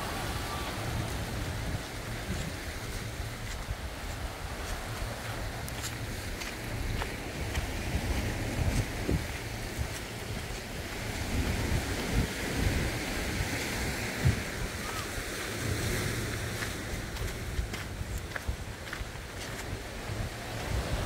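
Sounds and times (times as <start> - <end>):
surf breaking on beach: 0.0 - 21.0
wind buffeting microphone: 0.0 - 21.0.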